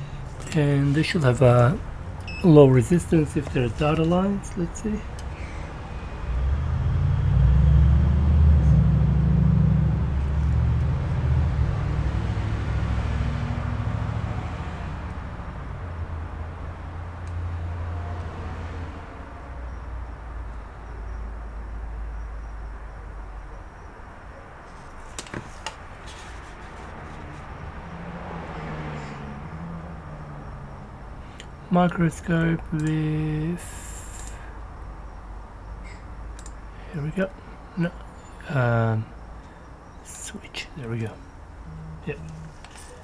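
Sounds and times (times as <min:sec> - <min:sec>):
sharp clicks: 0:32.4 - 0:33.0, 0:36.3 - 0:36.6.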